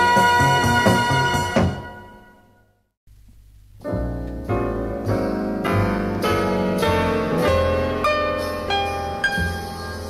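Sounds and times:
instrumental easy-listening music: 0:00.0 - 0:10.0
piano chords: 0:03.6 - 0:10.0.

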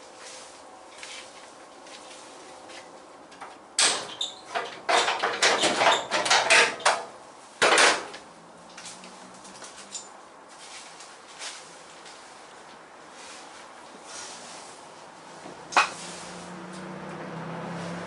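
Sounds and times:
metallic clattering and scraping: 0:03.8 - 0:11.7.

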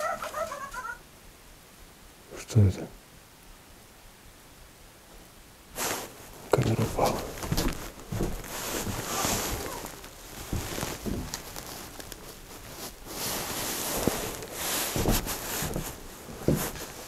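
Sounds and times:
soft knocks and thuds: 0:06.6 - 0:11.6, 0:14.0 - 0:16.9
camera handling rustle: 0:07.1 - 0:15.8.

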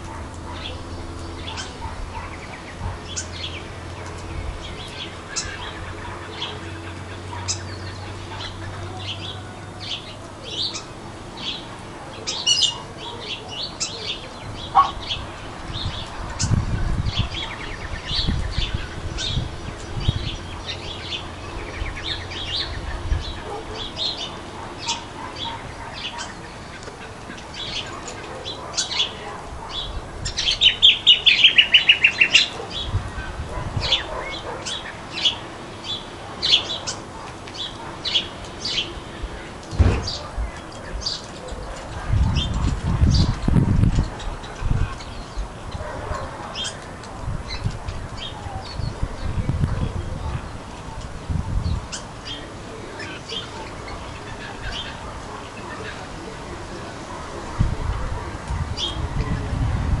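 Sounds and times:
rapid chattering calls: 0:00.0 - 0:46.9.

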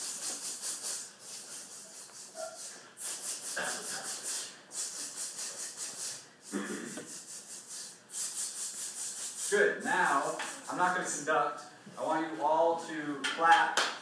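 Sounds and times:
band hissing rhythm pattern: 0:00.0 - 0:11.2.

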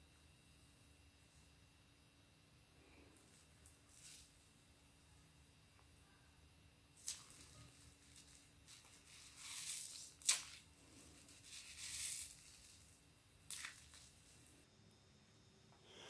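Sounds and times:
wet sponge squelching: 0:13.5 - 0:14.6.

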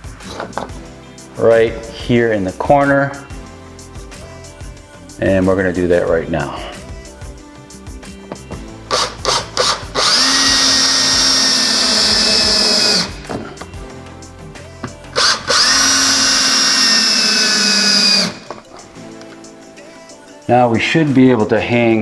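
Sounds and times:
cordless drill driving screws: 0:08.9 - 0:13.3, 0:15.2 - 0:18.6.

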